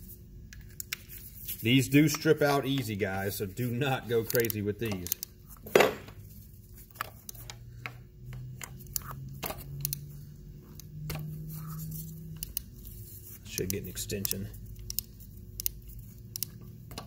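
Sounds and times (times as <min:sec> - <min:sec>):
wrench clicks and taps: 0:04.2 - 0:05.3, 0:13.5 - 0:17.0.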